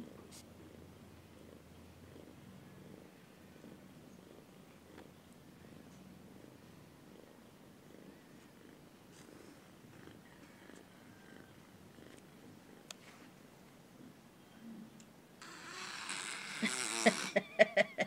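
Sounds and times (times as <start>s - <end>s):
cat purring softly: 0.0s - 12.9s.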